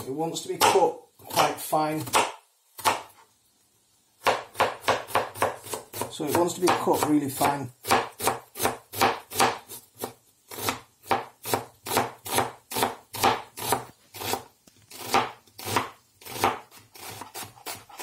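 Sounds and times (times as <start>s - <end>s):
knife chopping on cutting board: 0.5s - 3.2s, 4.2s - 18.0s.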